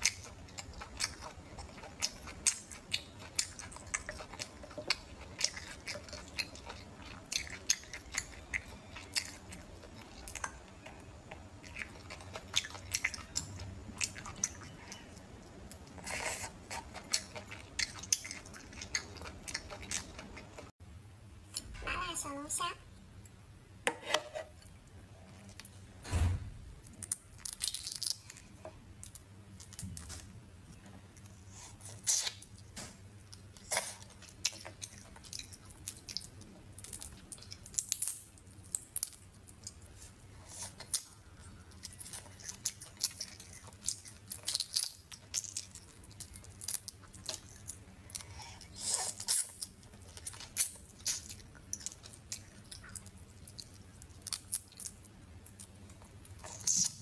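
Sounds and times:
crawfish shells cracking: 26.9 - 28.4.

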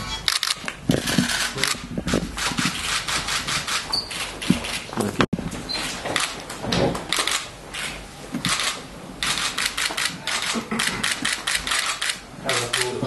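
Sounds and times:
camera shutters clicking: 0.3 - 1.8, 6.2 - 6.4, 7.1 - 13.0.

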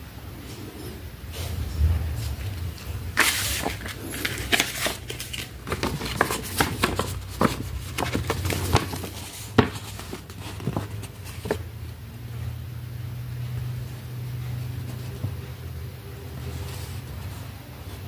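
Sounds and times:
paper and plastic crinkling: 2.2 - 11.7.

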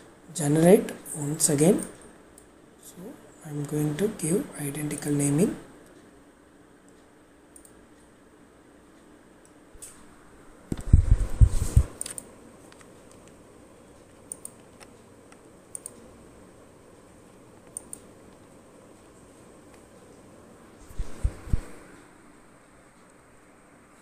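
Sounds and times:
mouse clicks: 14.3 - 16.0, 17.6 - 18.4.

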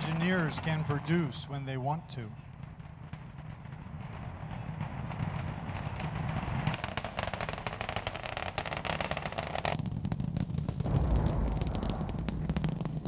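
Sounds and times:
rocket exhaust rumble with crackling: 0.0 - 13.0.

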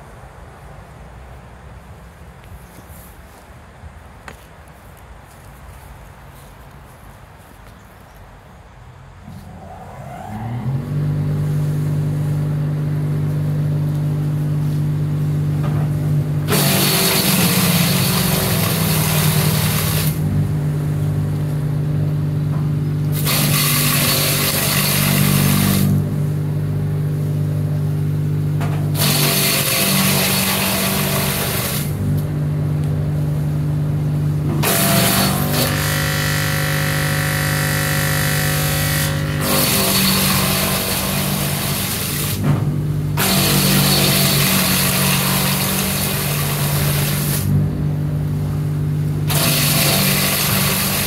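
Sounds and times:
electric wood chipper humming: 10.8 - 51.0.

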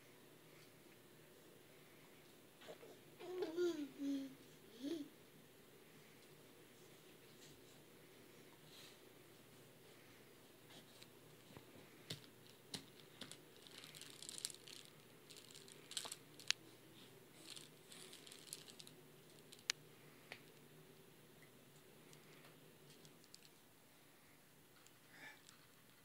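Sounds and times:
plastic link rings clicking: 12.8 - 16.6, 17.4 - 19.8, 22.9 - 23.5.

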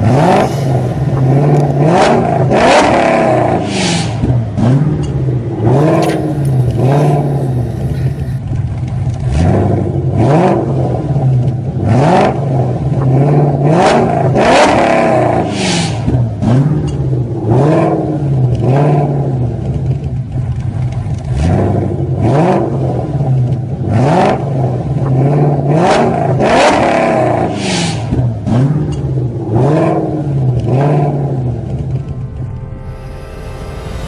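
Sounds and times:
steady low hum: 0.0 - 3.7, 5.2 - 8.4, 31.2 - 34.0
car engine revving: 0.0 - 8.4, 9.2 - 19.7, 21.2 - 34.0.

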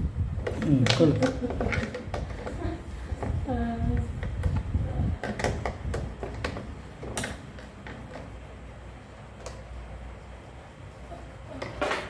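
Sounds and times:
plastic parts clicking and knocking: 0.4 - 3.4, 4.0 - 8.5.

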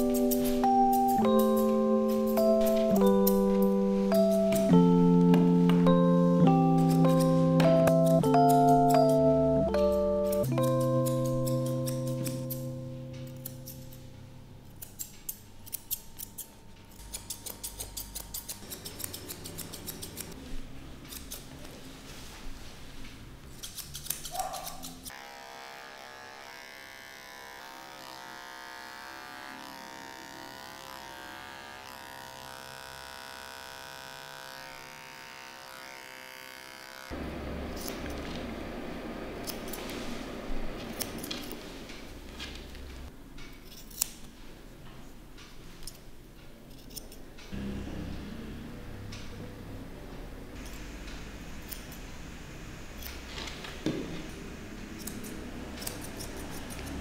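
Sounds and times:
scissors snipping fur: 6.6 - 9.2, 9.8 - 14.1, 14.7 - 20.4, 21.1 - 21.5, 23.6 - 25.2, 37.8 - 38.2, 39.4 - 39.9, 40.9 - 41.6, 43.4 - 44.3, 46.7 - 47.2, 51.6 - 52.0, 54.9 - 57.0
electric pet clipper running: 25.1 - 38.2.

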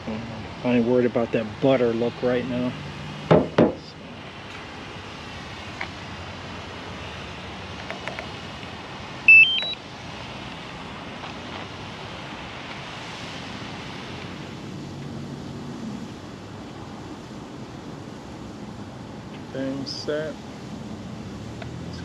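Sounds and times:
outdoor background hiss: 0.0 - 22.0
rising electronic beeps: 9.3 - 9.8.

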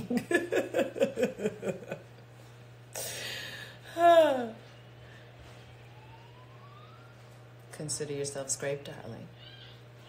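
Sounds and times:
woman laughing: 0.0 - 2.2, 3.9 - 4.6.

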